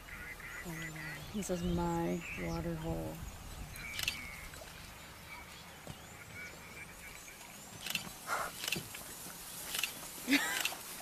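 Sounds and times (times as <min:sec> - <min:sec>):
wild dogs twittering calls: 0:03.8 - 0:08.9.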